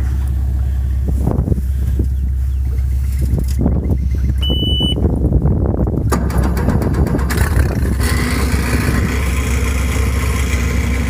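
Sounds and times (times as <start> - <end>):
outboard jet motor running: 6.1 - 11.0.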